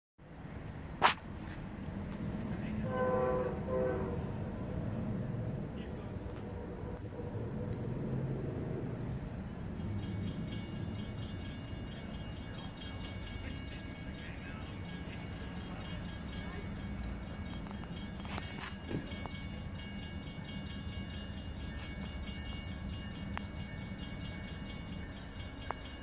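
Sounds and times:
train rumbling: 0:00.2 - 0:26.0
locomotive horn blasts: 0:02.8 - 0:04.8.

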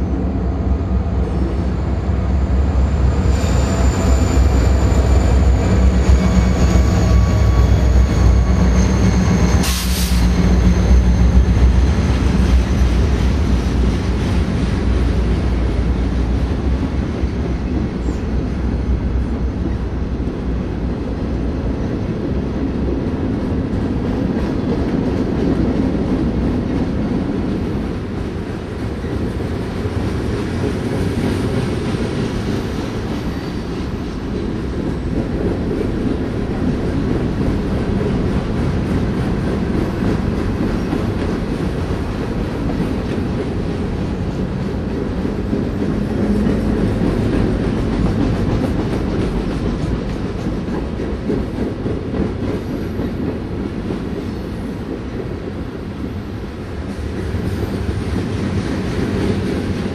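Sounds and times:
high thin wheel squeal: 0:03.1 - 0:11.2.

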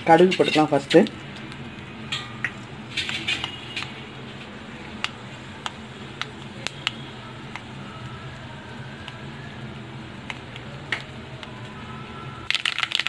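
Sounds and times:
seeds popping: 0:12.5 - 0:13.0.

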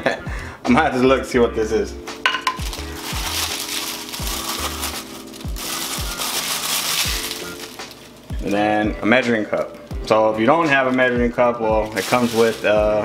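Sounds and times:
background music with beat: 0:00.0 - 0:13.0
plastic bag crinkling: 0:02.4 - 0:08.7, 0:11.8 - 0:13.0.

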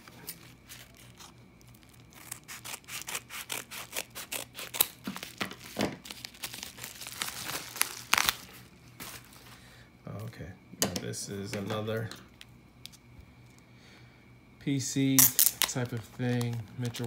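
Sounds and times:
paper and plastic crinkling: 0:00.0 - 0:03.2, 0:04.0 - 0:09.6, 0:15.4 - 0:17.0
scissors cutting padded mailer: 0:02.1 - 0:05.5.

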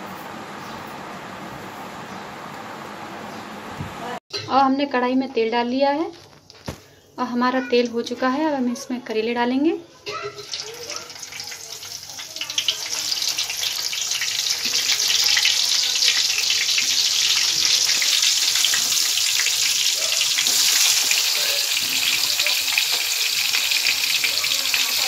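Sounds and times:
vegetables sizzling in hot oil: 0:10.2 - 0:25.0.

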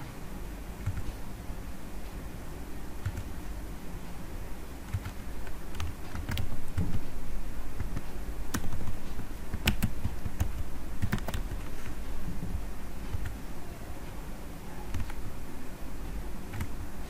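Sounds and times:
low steady hum: 0:00.0 - 0:17.0
keyboard keystroke clicks: 0:09.5 - 0:11.7, 0:14.9 - 0:15.3.

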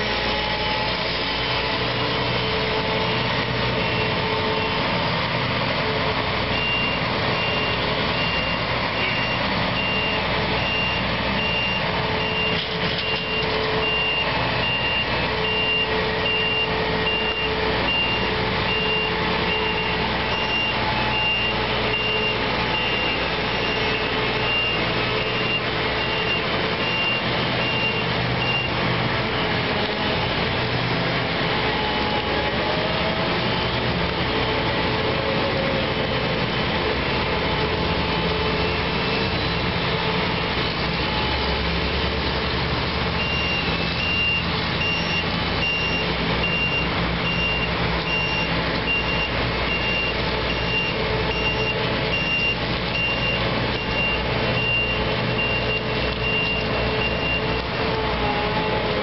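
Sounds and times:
diesel engine running: 0:00.0 - 0:59.0
backup alarm beeping: 0:06.6 - 0:28.8, 0:43.2 - 0:57.6.

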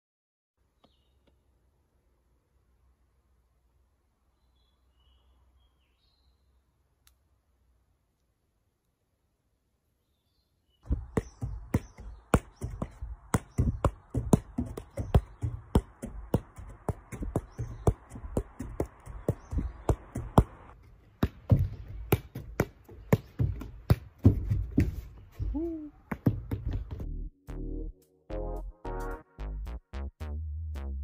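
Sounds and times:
football kicked thumps: 0:10.9 - 0:20.5, 0:21.2 - 0:25.5, 0:26.1 - 0:27.0.

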